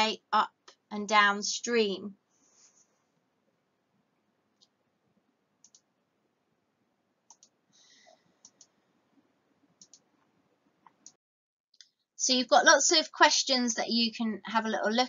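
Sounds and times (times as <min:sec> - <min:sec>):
soft short clicks: 0:07.3 - 0:07.5.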